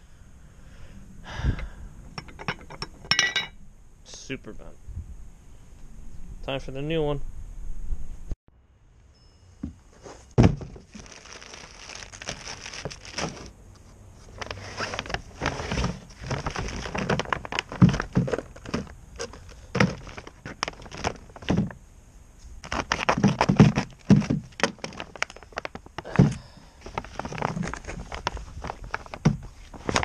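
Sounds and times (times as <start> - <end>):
loud thump: 10.4 - 10.8
plastic packaging crinkling: 10.5 - 13.5, 14.2 - 21.7, 22.6 - 30.0
handling clicks and knocks: 14.3 - 21.8.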